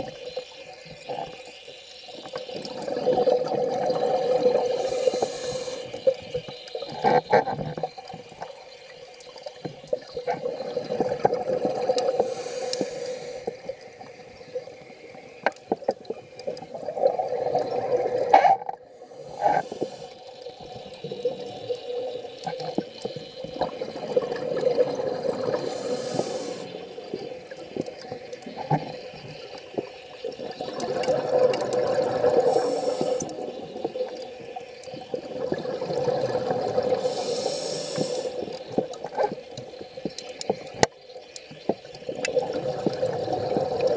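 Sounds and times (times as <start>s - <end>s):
gurgling exhaled bubbles: 2.4s - 8.1s, 9.9s - 15.0s, 16.0s - 40.0s, 41.8s - 43.9s
underwater regulator breathing: 4.4s - 6.2s, 11.9s - 13.8s, 18.3s - 20.3s, 25.4s - 27.0s, 32.3s - 33.6s, 36.7s - 38.7s.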